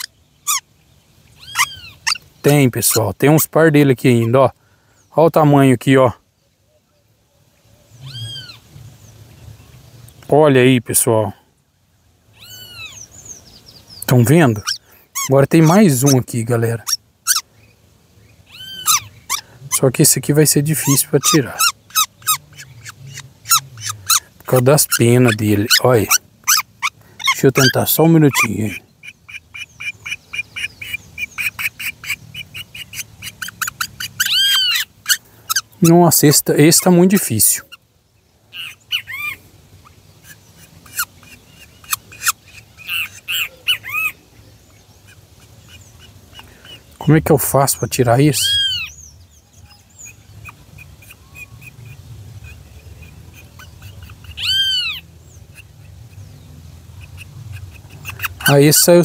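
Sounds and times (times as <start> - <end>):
bird squawk: 0.0 - 0.7, 1.3 - 3.1, 7.8 - 8.7, 12.3 - 13.4, 14.1 - 17.6, 18.4 - 37.9, 38.5 - 59.0
bird nestling peeping: 1.4 - 4.4, 12.4 - 17.4, 18.5 - 37.8, 40.2 - 59.0.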